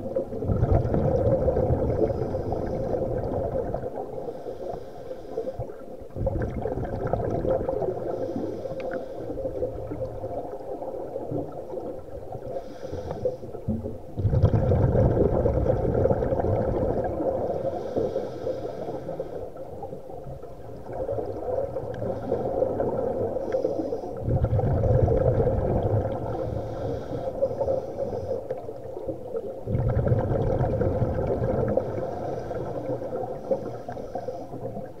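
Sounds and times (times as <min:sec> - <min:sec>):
underwater hum: 0:00.0 - 0:35.0
hissy inhalations: 0:02.0 - 0:03.1, 0:04.2 - 0:05.8, 0:08.0 - 0:09.8, 0:12.5 - 0:13.6, 0:17.4 - 0:19.7, 0:22.0 - 0:24.2, 0:26.3 - 0:28.6, 0:31.7 - 0:34.8.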